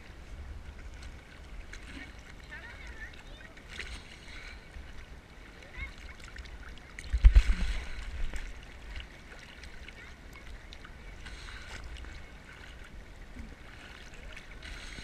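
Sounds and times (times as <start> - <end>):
low rumble of water: 0.0 - 15.0
water sloshing and lapping: 0.0 - 15.0
water splash: 5.7 - 15.0.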